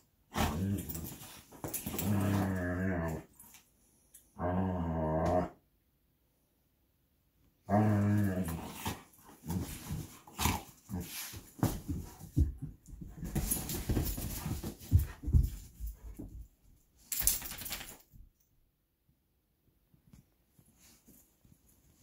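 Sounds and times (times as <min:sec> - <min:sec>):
dogs scuffling and pawing: 0:00.3 - 0:03.6, 0:08.2 - 0:18.2
dog growling: 0:01.9 - 0:03.3, 0:04.4 - 0:05.6, 0:07.6 - 0:11.2.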